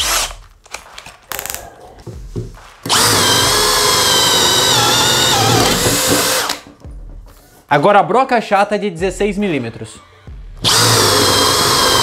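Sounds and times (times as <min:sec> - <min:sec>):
cordless drill whining into wood: 0:02.9 - 0:06.6, 0:10.6 - 0:12.0.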